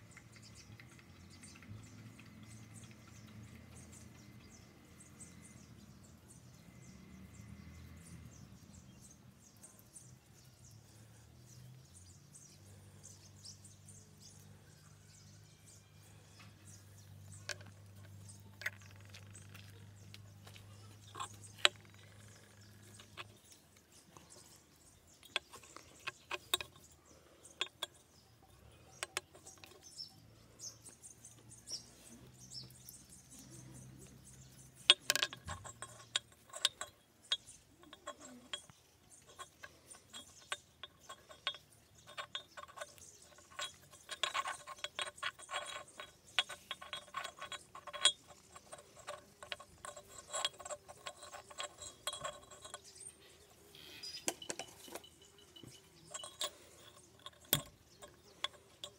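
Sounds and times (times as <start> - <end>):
small parts clicking: 16.3 - 58.9.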